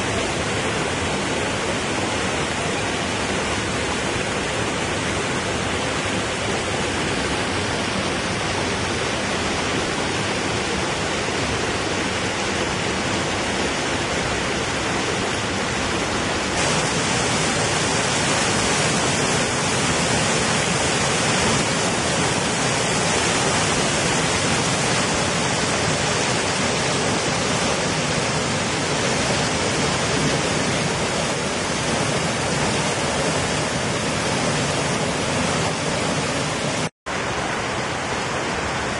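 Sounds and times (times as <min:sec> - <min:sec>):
water pouring into a pool: 0:16.6 - 0:36.0.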